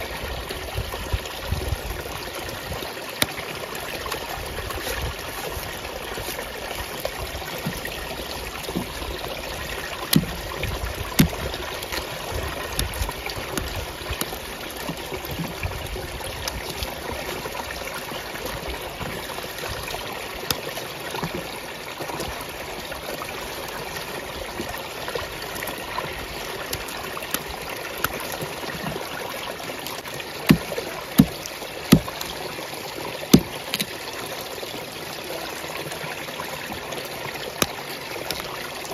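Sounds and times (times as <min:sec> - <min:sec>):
water running from a tap: 0:00.0 - 0:38.9
knife peeling roots knocks: 0:10.1 - 0:14.3, 0:30.5 - 0:32.2, 0:33.4 - 0:33.9.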